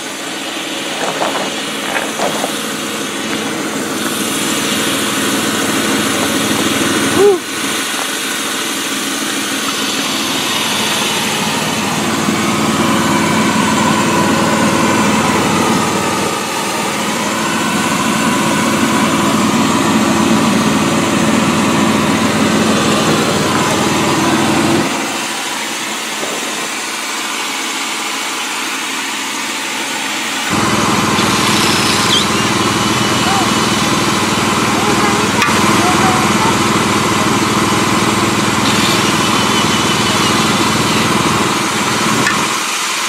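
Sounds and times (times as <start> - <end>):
air compressor running: 0.0 - 43.0.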